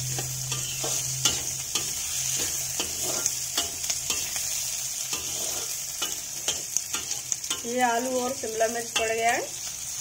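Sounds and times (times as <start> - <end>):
vegetables sizzling in pan: 0.0 - 10.0
spatula scraping metal pan: 0.1 - 7.8.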